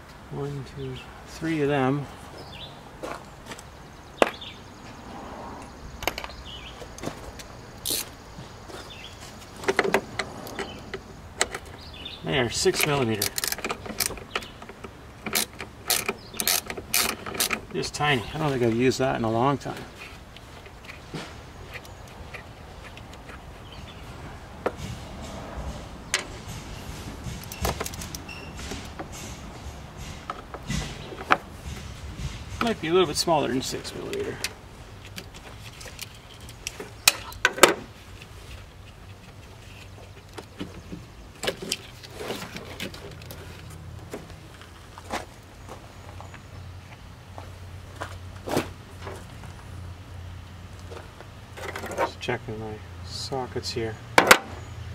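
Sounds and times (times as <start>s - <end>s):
metal tools clicking and clinking: 12.7s - 17.8s.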